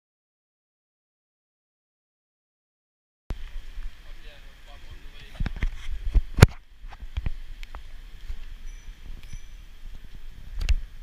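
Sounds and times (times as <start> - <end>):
street ambience rumble and hiss: 3.3 - 11.0.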